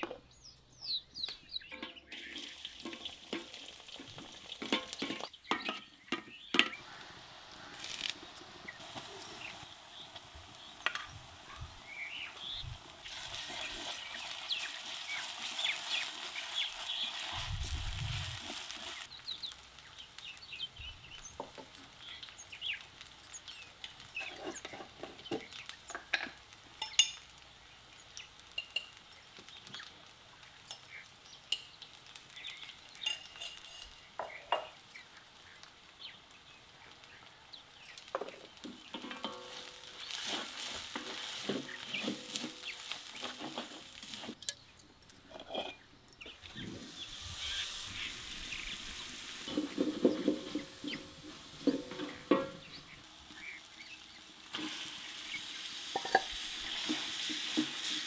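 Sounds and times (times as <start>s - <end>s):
spoon clinking on jars and pan: 1.7s - 7.0s, 23.2s - 27.4s, 28.4s - 31.8s, 32.5s - 35.6s, 37.7s - 40.1s, 55.9s - 58.0s
food sizzling in oil: 1.9s - 44.5s, 46.2s - 58.0s.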